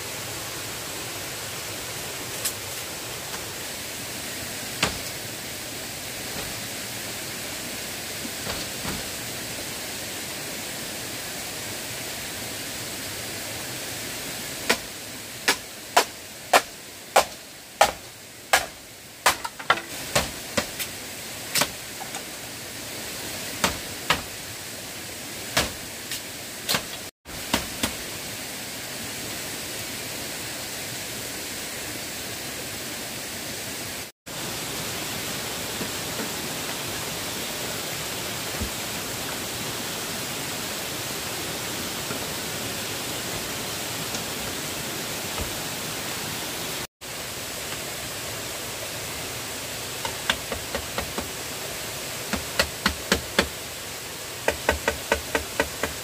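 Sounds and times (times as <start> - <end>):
tools knocking on bamboo: 15.5 - 20.8, 50.0 - 51.3, 52.3 - 53.5, 54.5 - 56.0.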